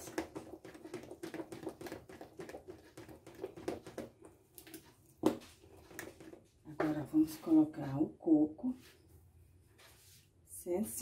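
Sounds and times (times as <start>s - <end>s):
spoon stirring batter in bowl: 0.0s - 7.7s.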